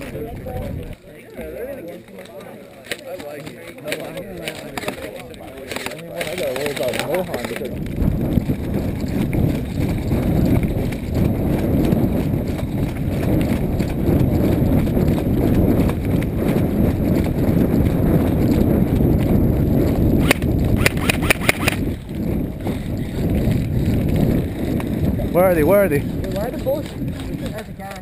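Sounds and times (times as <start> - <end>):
footsteps on dirt track: 0.0 - 28.0
sharp clicks: 20.2 - 21.9.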